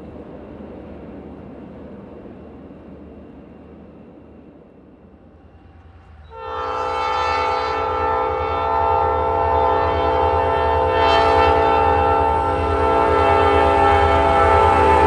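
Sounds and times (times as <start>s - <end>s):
low train rumble: 0.0s - 15.0s
train air horn: 6.2s - 15.0s.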